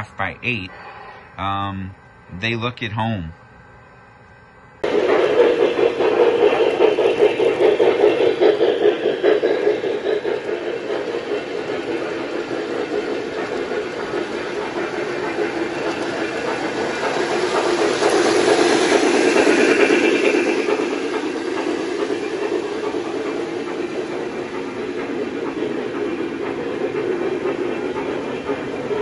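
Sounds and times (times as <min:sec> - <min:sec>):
model trains rattling on rails: 0:04.8 - 0:29.0.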